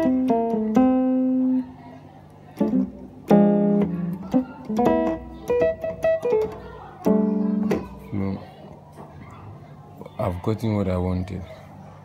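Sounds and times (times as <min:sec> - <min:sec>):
electric piano keyboard notes: 0:00.0 - 0:09.3.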